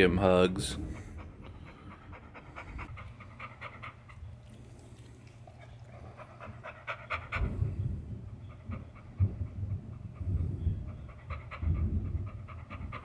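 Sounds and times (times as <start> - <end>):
dog panting rapidly: 0.0 - 13.0.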